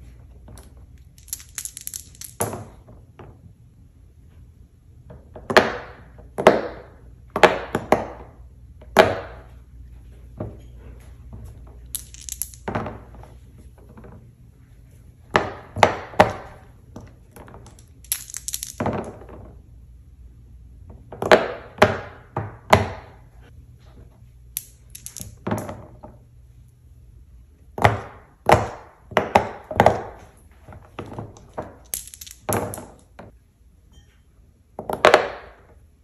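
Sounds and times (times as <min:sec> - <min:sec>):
dice rolling on board: 0:00.5 - 0:02.8, 0:11.8 - 0:13.2, 0:15.4 - 0:19.5, 0:24.6 - 0:25.8, 0:31.0 - 0:33.3.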